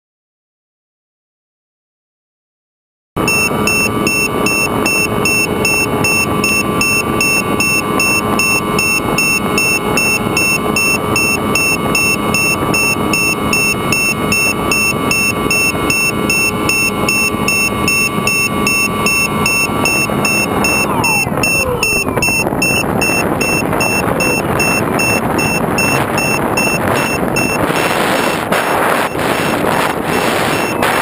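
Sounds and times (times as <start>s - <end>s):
electric motor hum: 3.2s - 31.0s
high electronic chirping: 3.2s - 31.0s
rush of air: 21.0s - 31.0s.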